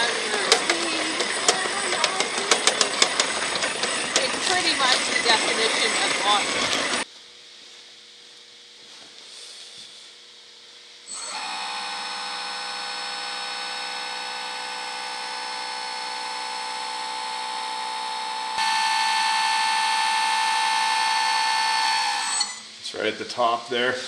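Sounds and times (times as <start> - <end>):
electric hydraulic pump whining: 0.0 - 7.1, 11.1 - 22.8.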